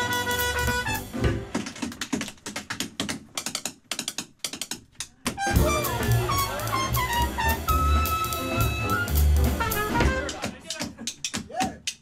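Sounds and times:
horn playing: 0.0s - 1.3s, 5.4s - 10.4s
jazz band playing: 0.0s - 1.8s, 5.4s - 10.6s.

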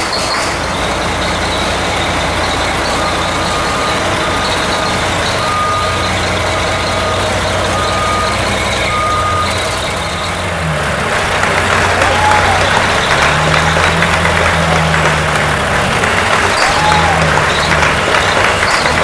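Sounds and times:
diesel truck engine running: 0.0s - 19.0s
short electronic beeps: 1.3s - 10.4s.

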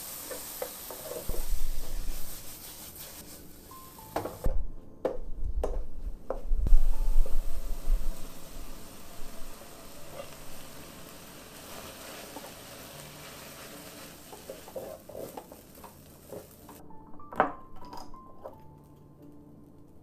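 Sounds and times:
spatula scraping rice in a wok: 0.0s - 3.6s, 10.0s - 16.7s
hiss of frying: 0.0s - 4.5s, 6.7s - 16.8s.

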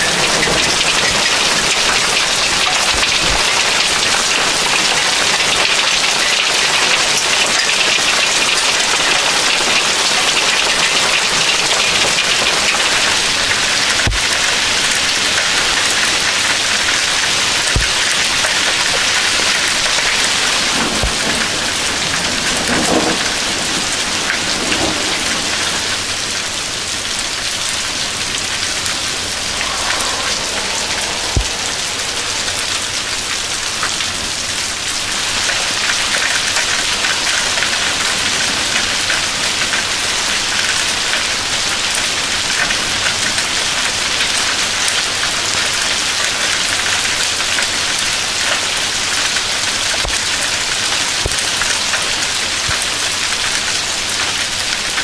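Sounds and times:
hail and heavy rain pelting: 0.0s - 14.3s, 17.3s - 33.2s
low rumble: 27.9s - 34.4s.

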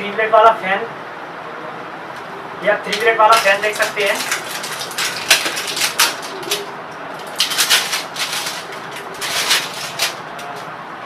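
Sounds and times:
plastic wrapping crinkling: 2.9s - 10.6s.

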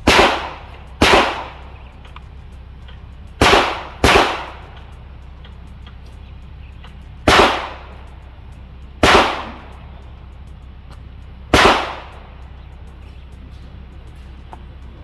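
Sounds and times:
handgun shots with echo: 0.0s - 1.7s, 3.4s - 4.7s, 7.3s - 7.9s, 9.0s - 9.7s, 11.5s - 12.2s.

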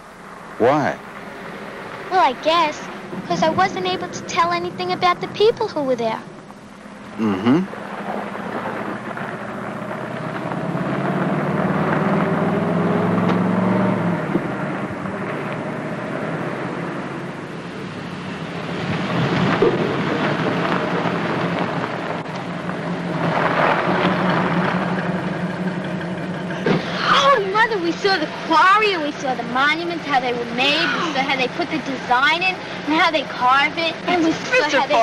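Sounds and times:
car engine running: 0.0s - 35.0s.

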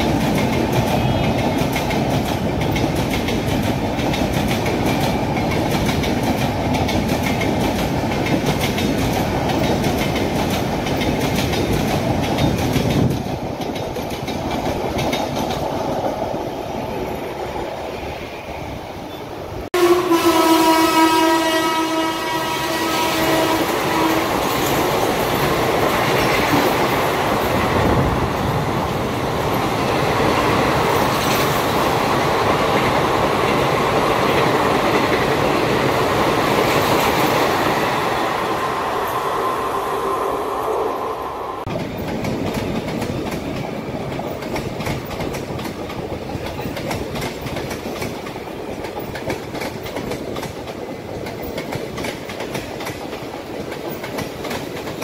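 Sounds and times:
train wheels clicking over rail joints: 0.0s - 16.4s, 29.2s - 37.8s, 41.6s - 55.0s
train coaches passing: 0.0s - 55.0s
train horn: 1.0s - 1.5s, 19.8s - 24.6s.

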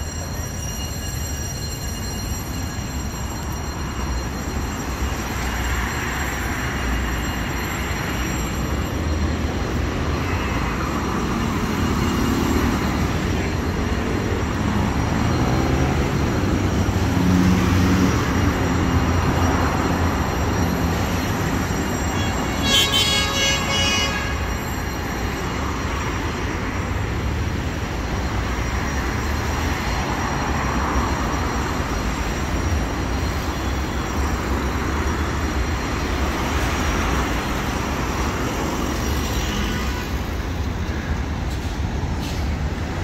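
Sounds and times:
road traffic rumble: 0.0s - 43.0s
car horn: 22.2s - 24.5s.

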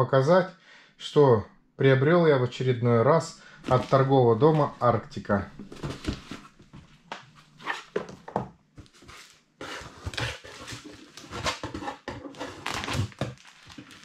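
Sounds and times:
plastic sleeve and paper crinkling: 3.6s - 5.0s, 8.9s - 14.0s.

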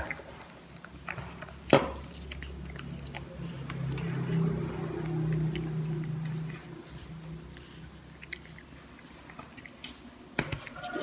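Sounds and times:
low steady hum: 0.0s - 11.0s
monkey chewing wetly: 0.0s - 11.0s.

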